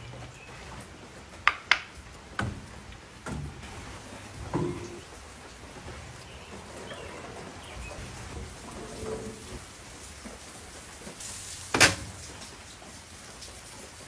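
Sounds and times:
steak knocking on wire rack: 0:04.5 - 0:05.0
steaks sizzling on a grill: 0:08.0 - 0:13.0.

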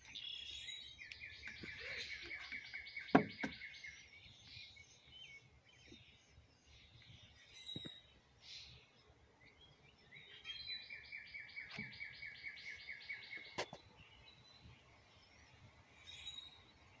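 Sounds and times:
songbird trilling: 0:00.0 - 0:06.2, 0:10.1 - 0:14.6.

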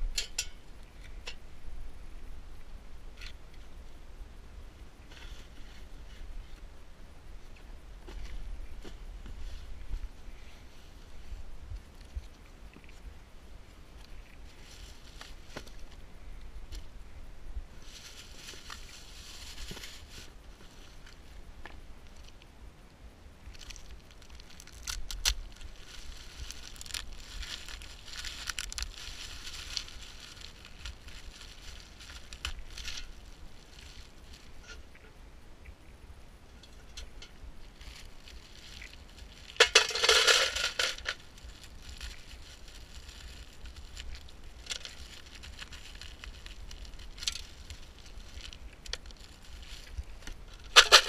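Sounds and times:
plastic bags crinkling: 0:23.6 - 0:34.5, 0:37.7 - 0:51.0.

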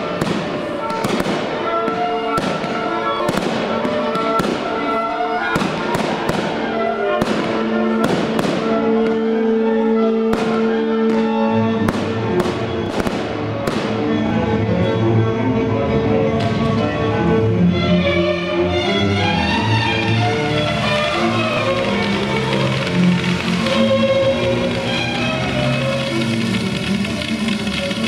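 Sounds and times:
fireworks bangs and crackles: 0:00.0 - 0:14.3, 0:16.4 - 0:16.8, 0:19.2 - 0:28.0
loud music with held notes: 0:00.0 - 0:28.0.

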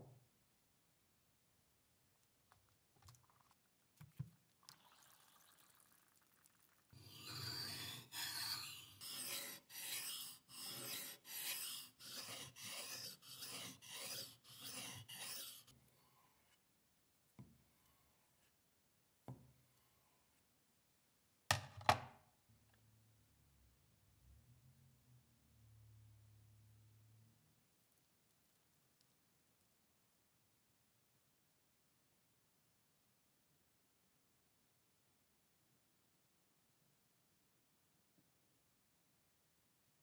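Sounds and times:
hand rubbing metal: 0:07.0 - 0:15.7.

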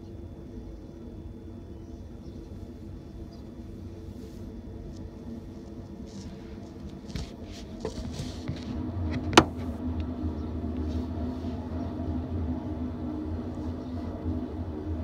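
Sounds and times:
train hum: 0:00.0 - 0:15.0
freight train rumbling past: 0:08.8 - 0:15.0.

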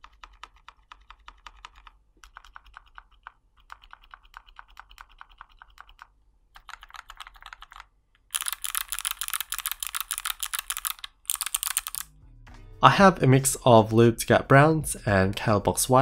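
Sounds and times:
rapid typing on mechanical keys: 0:00.0 - 0:12.1.

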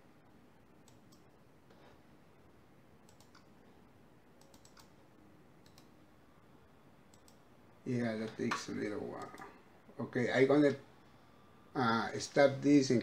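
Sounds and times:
computer mouse clicks: 0:00.8 - 0:01.4, 0:03.0 - 0:03.6, 0:04.4 - 0:05.0, 0:05.6 - 0:06.0, 0:07.1 - 0:07.4.

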